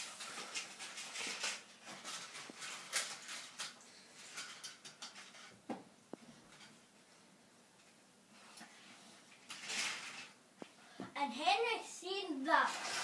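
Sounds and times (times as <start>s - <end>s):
toy train track pieces clattering: 0.0s - 5.5s, 9.5s - 10.4s, 12.6s - 13.0s.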